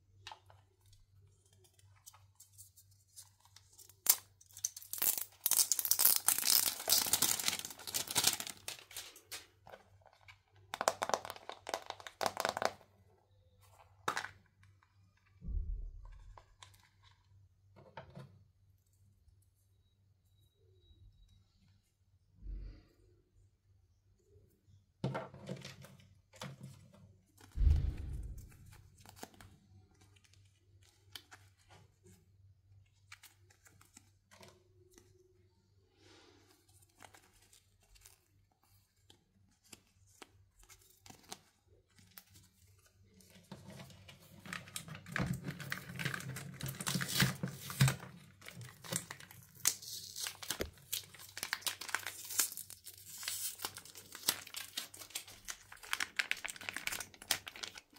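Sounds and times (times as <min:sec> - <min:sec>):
plastic wrapper crinkling and tearing: 0:01.3 - 0:12.8, 0:28.2 - 0:32.2, 0:36.7 - 0:57.9
thud: 0:15.4 - 0:16.5, 0:27.6 - 0:28.8.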